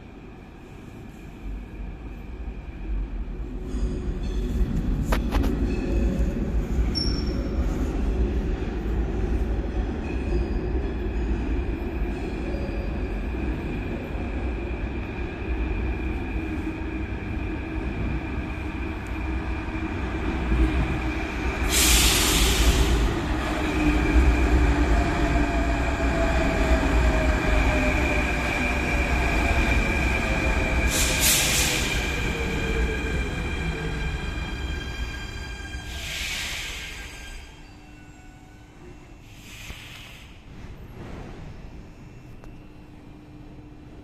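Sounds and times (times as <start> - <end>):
train rumbling into station: 0.0 - 44.0
train brakes hissing: 21.6 - 23.2, 30.9 - 32.1, 35.9 - 37.5, 39.2 - 40.5.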